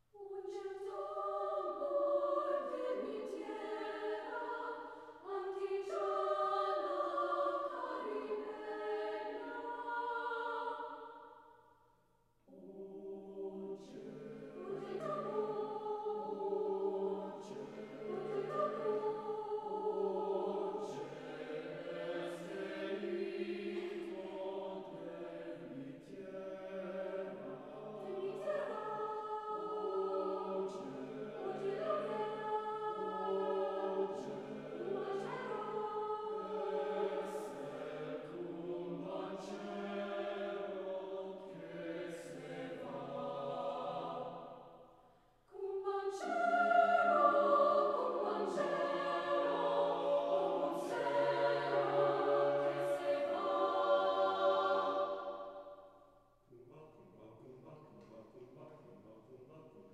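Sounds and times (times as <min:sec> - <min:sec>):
mixed choir singing: 0:00.2 - 0:11.5, 0:12.5 - 0:44.8, 0:45.5 - 0:55.9.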